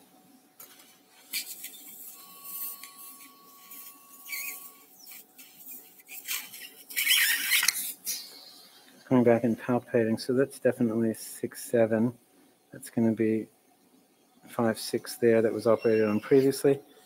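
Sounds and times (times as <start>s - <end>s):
electrosurgical activation tone: 1.1s - 7.8s, 15.4s - 17.0s.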